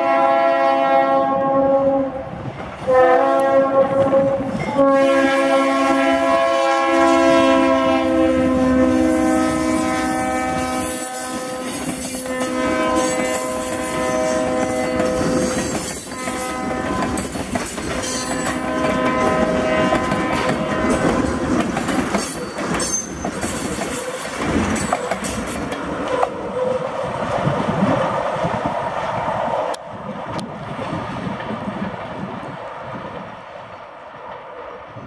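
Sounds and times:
locomotive horn blasts: 0.0s - 2.2s, 2.9s - 17.2s, 18.2s - 21.4s
train rumbling: 0.0s - 35.0s
train wheels clattering over rail joints: 10.5s - 26.4s.

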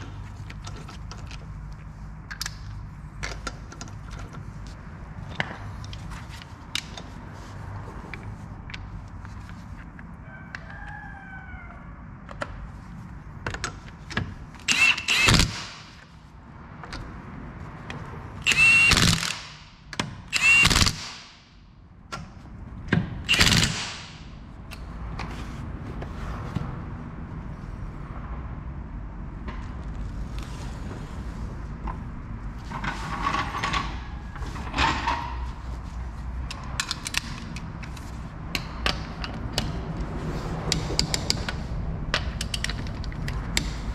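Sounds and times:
cordless impact wrench bursts: 14.7s - 15.9s, 18.4s - 19.6s, 20.3s - 21.3s, 23.3s - 24.0s.

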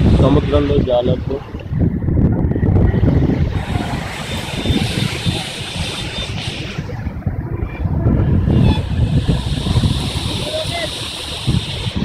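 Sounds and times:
wind buffeting microphone: 0.0s - 12.0s
surf breaking on beach: 2.6s - 12.0s.

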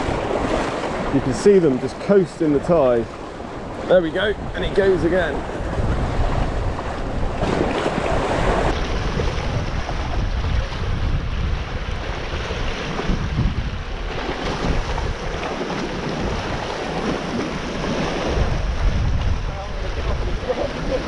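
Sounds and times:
waves breaking against rocks: 0.0s - 21.0s
wind buffeting microphone: 0.0s - 21.0s.

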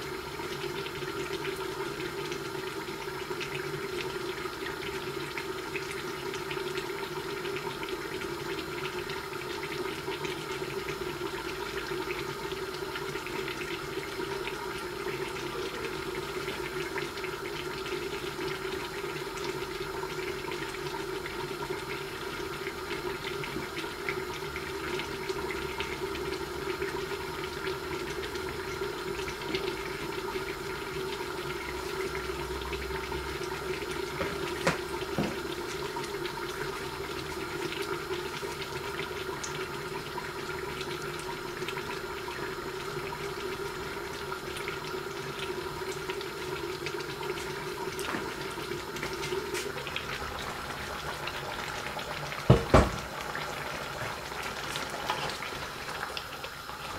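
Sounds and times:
food sizzling and crackling: 45.5s - 56.9s.

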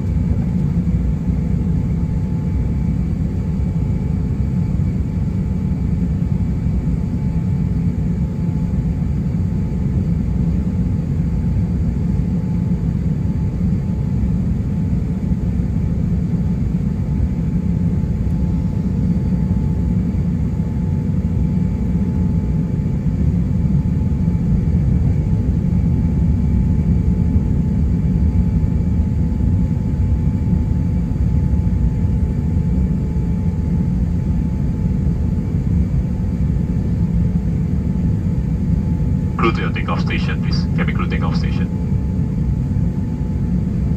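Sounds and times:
aircraft cabin rumble: 0.0s - 3.6s
faint jet engine whine: 0.0s - 43.9s.

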